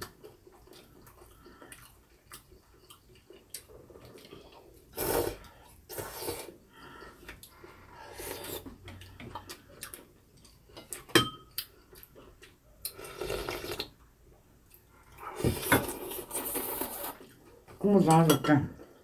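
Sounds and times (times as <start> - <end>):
slurping noodles: 4.9 - 6.6, 12.9 - 13.9, 15.2 - 17.2.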